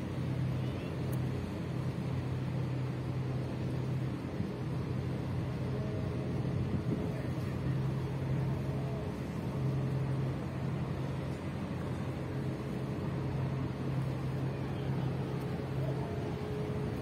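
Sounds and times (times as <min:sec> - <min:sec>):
boat engine drone: 0:00.0 - 0:17.0
water wash: 0:00.0 - 0:17.0.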